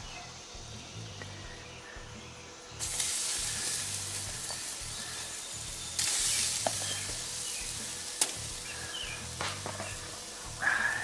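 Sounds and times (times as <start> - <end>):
steaks sizzling on grill: 2.8 - 11.0.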